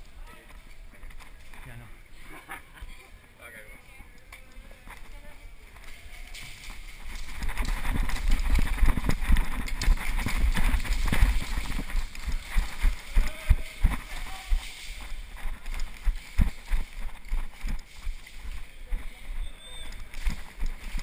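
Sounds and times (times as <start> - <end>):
running footsteps on concrete: 4.2 - 21.0.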